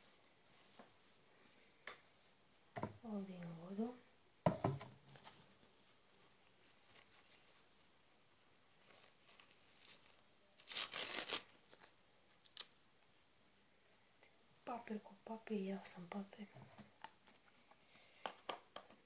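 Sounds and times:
toilet paper tearing: 0:09.1 - 0:11.6.

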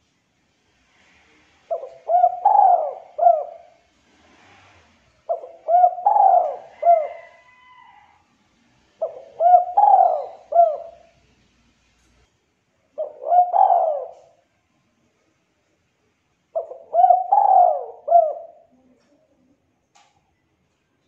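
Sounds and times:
dove cooing: 0:01.7 - 0:03.9, 0:05.2 - 0:07.9, 0:09.0 - 0:11.1, 0:13.0 - 0:14.4, 0:16.5 - 0:19.1.

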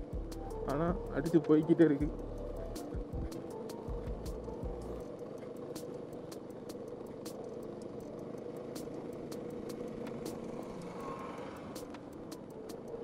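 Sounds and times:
motorcycle engine running: 0:00.0 - 0:13.0
gravel ticks and rattles: 0:04.9 - 0:13.0.

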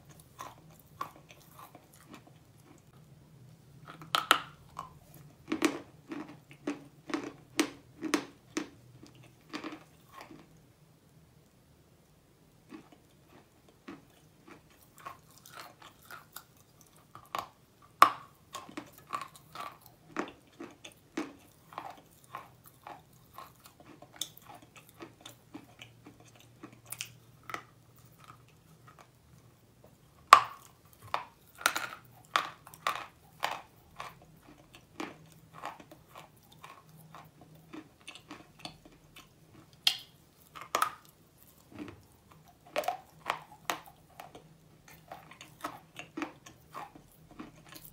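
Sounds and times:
chalk being chewed: 0:30.6 - 0:47.9.

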